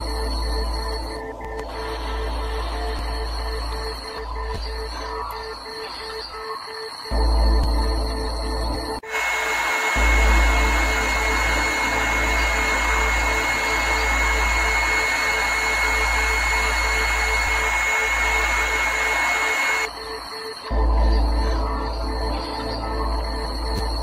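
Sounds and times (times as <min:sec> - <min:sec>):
low hum: 0:07.2 - 0:24.0
loud static hiss: 0:08.9 - 0:20.9.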